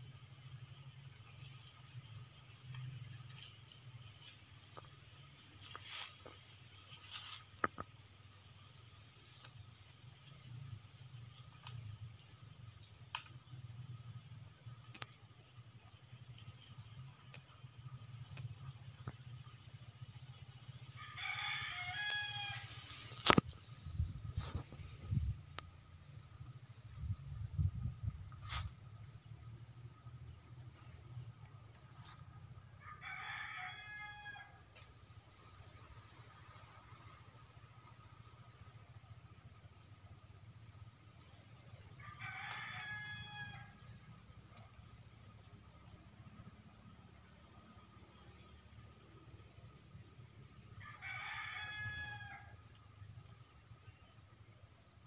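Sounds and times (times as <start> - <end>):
steady high hiss: 0.0 - 55.0
rooster crowing: 21.0 - 23.4, 32.8 - 34.6, 42.0 - 43.8, 50.8 - 52.6.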